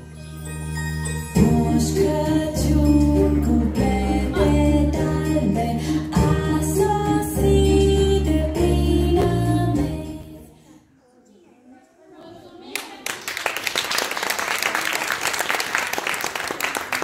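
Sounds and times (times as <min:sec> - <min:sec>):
music: 0:00.0 - 0:10.5
audience applause: 0:12.7 - 0:17.0.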